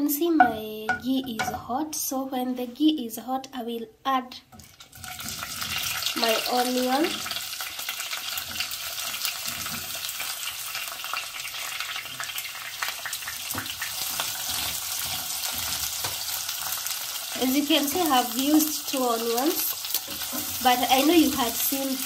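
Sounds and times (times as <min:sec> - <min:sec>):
onions sizzling in a pan: 0:04.5 - 0:22.0
spatula scraping a pan: 0:04.6 - 0:06.2, 0:08.2 - 0:10.2, 0:13.6 - 0:17.0, 0:17.7 - 0:22.0.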